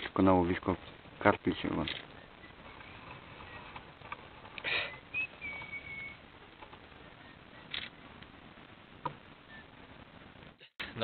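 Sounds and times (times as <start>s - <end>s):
faint outdoor hiss: 0.0s - 11.0s
thin whistle-like tone: 2.2s - 3.6s, 4.8s - 6.2s, 7.0s - 7.7s, 9.4s - 9.8s.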